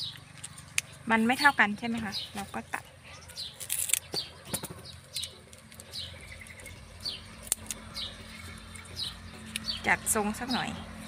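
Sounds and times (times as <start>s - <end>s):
small birds chirping: 0.0s - 11.0s
scissors snipping stems: 3.4s - 10.6s.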